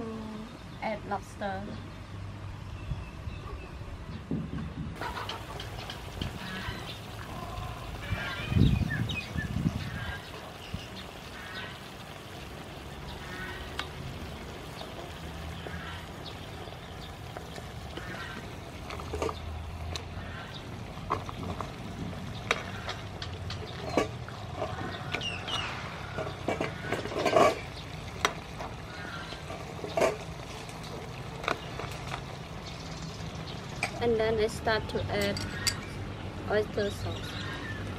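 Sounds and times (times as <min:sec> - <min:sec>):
sauce bubbling in frying pan: 0:05.0 - 0:33.9
lobster shells clattering on pan: 0:26.0 - 0:28.8.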